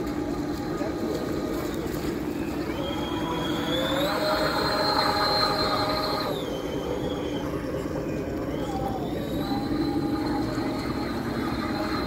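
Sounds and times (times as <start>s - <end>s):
model boat motor whine: 0.0s - 12.0s.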